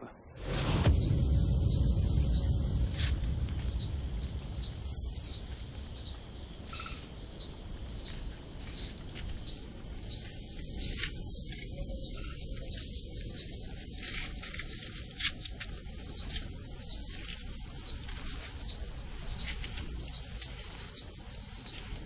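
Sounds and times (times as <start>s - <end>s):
insects chirping: 0.0s - 22.0s
low rumble: 0.3s - 12.4s.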